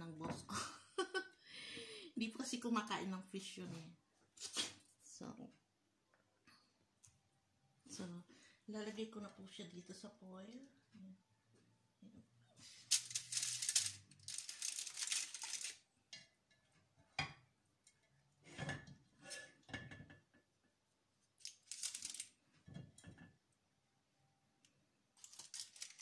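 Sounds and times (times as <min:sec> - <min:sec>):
aluminium foil crinkling: 0:12.6 - 0:15.9, 0:21.4 - 0:22.4, 0:25.2 - 0:26.0.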